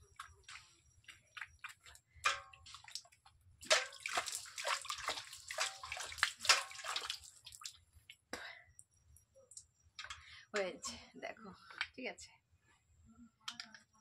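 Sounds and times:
water dripping: 0.0 - 8.5
hands splashing water on face: 1.3 - 7.8.

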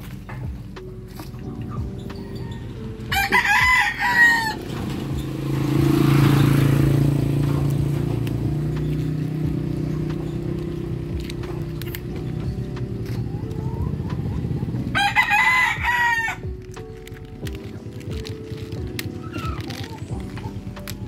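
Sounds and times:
rooster crowing: 2.1 - 4.8, 14.9 - 16.5.

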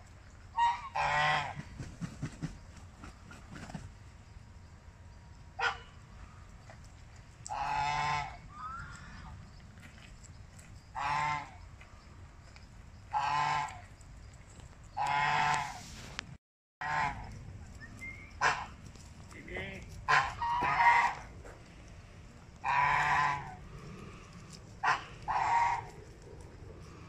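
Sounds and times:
geese honking: 0.6 - 1.6, 7.5 - 8.8, 13.1 - 13.8, 18.4 - 18.8, 20.1 - 21.3, 22.6 - 23.6, 24.8 - 26.0.

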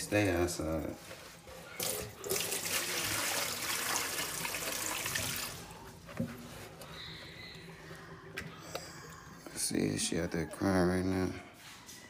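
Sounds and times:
tap water running into sink: 1.8 - 5.6.

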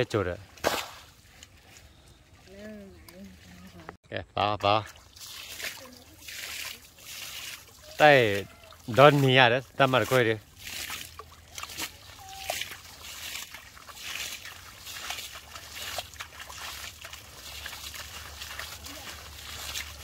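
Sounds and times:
water sloshing and splashing: 4.6 - 20.0.

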